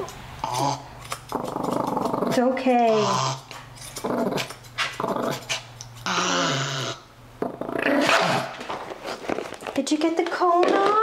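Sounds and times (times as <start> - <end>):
dog growling and snarling: 0.4 - 8.7.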